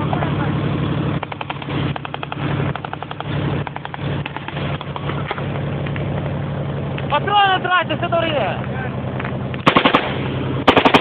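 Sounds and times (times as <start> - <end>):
vehicle engine running: 0.0 - 11.0
automatic gunfire: 9.6 - 11.0.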